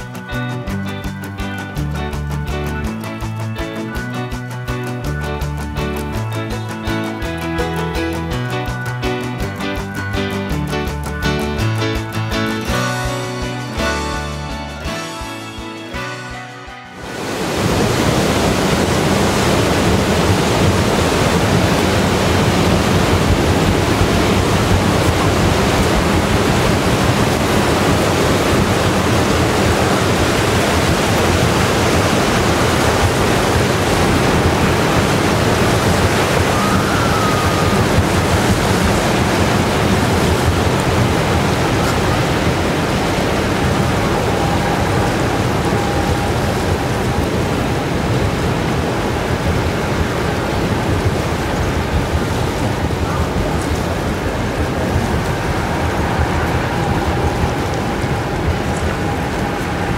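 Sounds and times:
ship propeller churning water: 0:17.0 - 0:59.9
low hum: 0:17.1 - 0:59.9.

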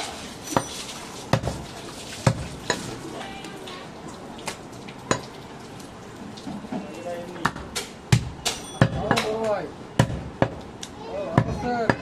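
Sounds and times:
cleaver chopping meat on wood: 0:01.3 - 0:01.6, 0:02.2 - 0:02.8, 0:07.4 - 0:10.7, 0:11.3 - 0:12.0.

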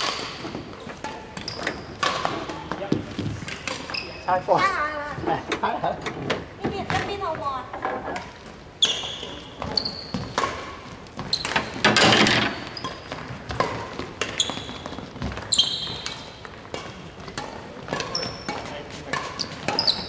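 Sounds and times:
racket hitting shuttlecock: 0:00.0 - 0:03.9, 0:09.1 - 0:20.0
shoe squeaks: 0:01.4 - 0:02.0, 0:03.8 - 0:04.4, 0:08.8 - 0:10.5, 0:11.2 - 0:13.3, 0:14.2 - 0:16.4, 0:18.0 - 0:20.0.

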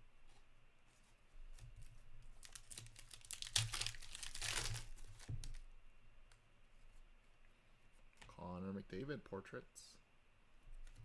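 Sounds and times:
foil wrapper tearing and crinkling: 0:02.3 - 0:05.6.

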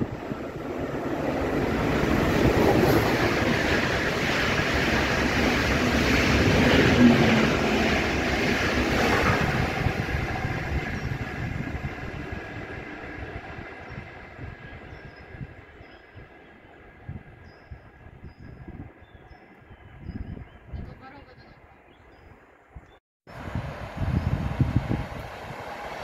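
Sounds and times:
train wheels rumbling on rails: 0:00.0 - 0:18.9.

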